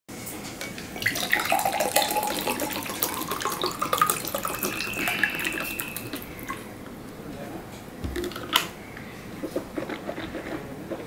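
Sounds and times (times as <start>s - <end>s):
water pouring into glass: 1.0s - 6.6s.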